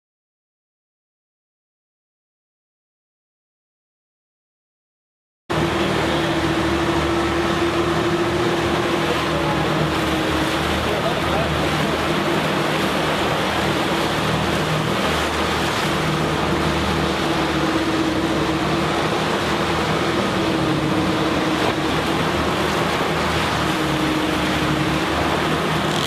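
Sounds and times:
boat engine droning: 5.5s - 26.0s
churning wake rushing: 5.5s - 26.0s.

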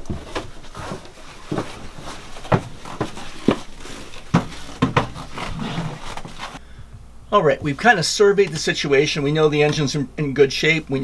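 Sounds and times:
soft rustling: 0.0s - 6.6s.

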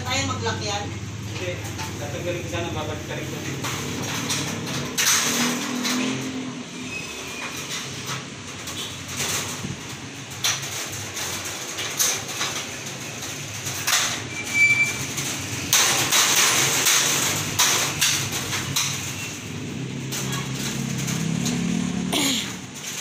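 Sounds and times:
street noise: 0.0s - 23.0s.

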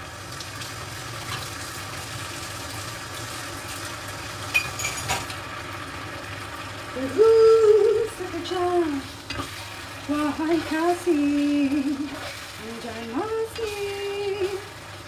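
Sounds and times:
vegetables sizzling in a pan: 0.0s - 15.0s
woman singing: 7.0s - 9.1s, 10.1s - 14.7s.

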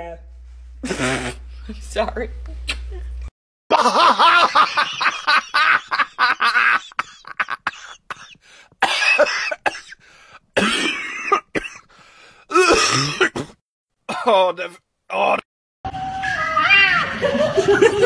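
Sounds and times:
person coughing: 7.0s - 10.0s, 10.6s - 11.9s, 12.5s - 14.4s.

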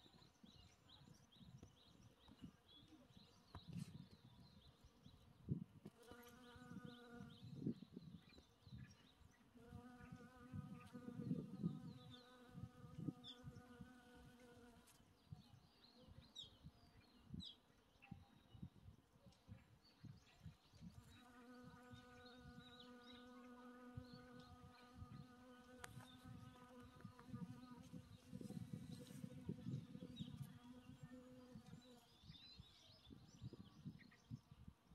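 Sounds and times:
faint bee wings buzzing: 5.8s - 7.8s, 9.6s - 15.1s, 21.0s - 32.1s.

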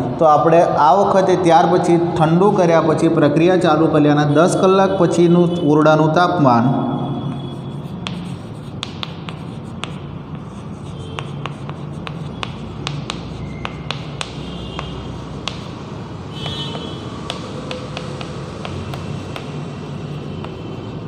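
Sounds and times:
chalk squeaks: 7.3s - 21.0s
chalk writing on chalkboard: 7.3s - 21.0s.

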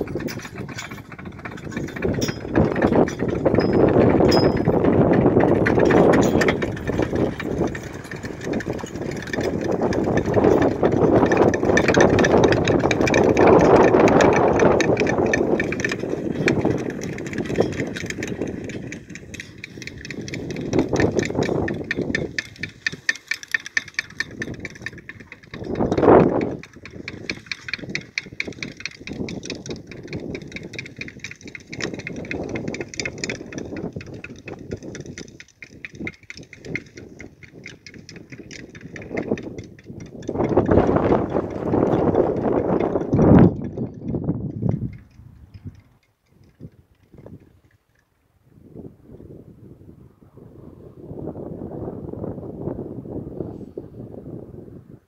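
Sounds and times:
manure spreader rattling: 0.0s - 48.2s.

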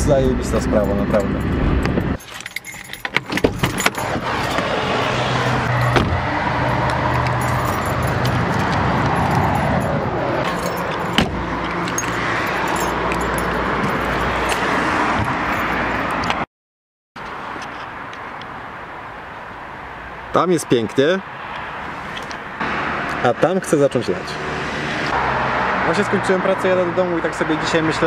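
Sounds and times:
car engine hum: 0.0s - 16.4s
road and tyre noise: 0.0s - 16.5s, 17.2s - 28.0s.

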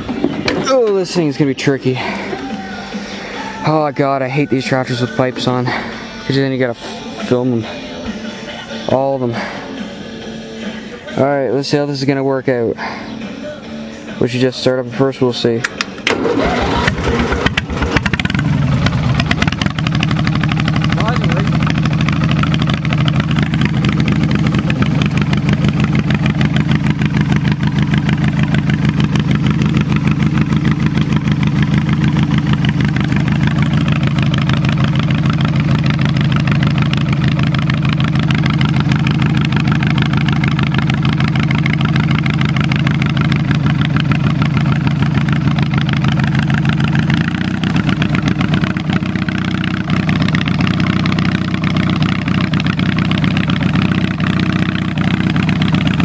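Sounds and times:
garden tractor engine running: 0.0s - 2.8s, 15.0s - 56.0s.

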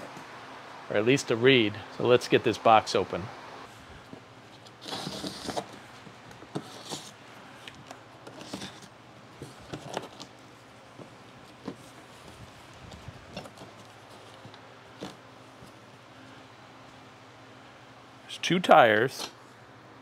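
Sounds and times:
tape and cardboard scraping: 4.5s - 5.8s, 6.4s - 7.2s, 8.2s - 10.3s
blade slitting packing tape: 4.8s - 5.7s.

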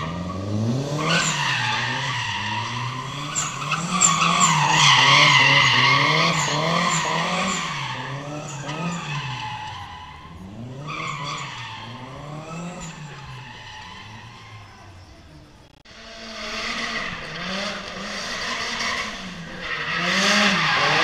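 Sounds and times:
car engine revving: 0.0s - 21.0s
tyres squealing: 1.0s - 15.4s.

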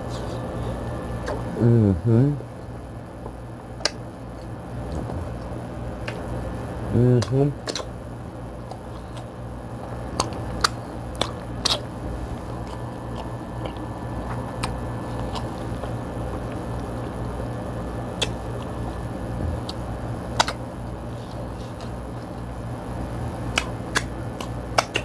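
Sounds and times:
steady low hum: 0.0s - 25.0s
biting and chewing: 3.2s - 6.3s, 7.2s - 17.2s, 18.2s - 22.5s, 23.4s - 25.0s.

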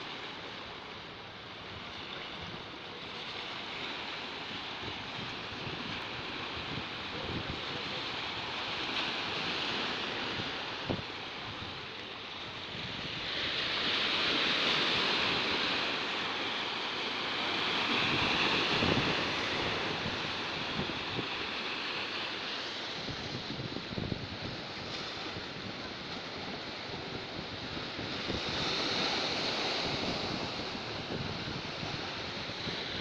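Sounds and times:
waves breaking on rocks: 1.8s - 33.0s
wind buffeting microphone: 17.9s - 21.5s, 23.0s - 33.0s.

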